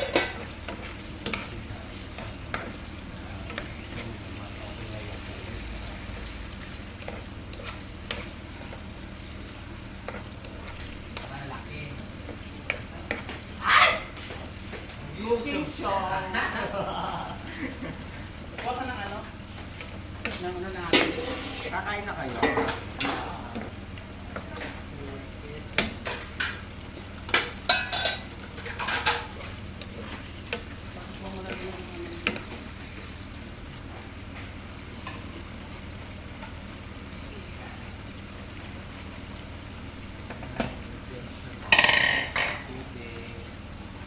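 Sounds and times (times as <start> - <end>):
kitchenware clinking: 0.0 - 0.5, 27.3 - 29.4, 41.7 - 42.7
spoon knocking and scraping pan: 0.0 - 2.8, 3.4 - 4.2, 6.7 - 8.9, 12.2 - 14.9, 19.5 - 21.7, 22.3 - 24.8, 25.7 - 30.8, 31.5 - 32.7, 41.6 - 42.7
spoon stirring in frying pan: 0.0 - 42.8
meat sizzling in sauce: 0.0 - 44.0.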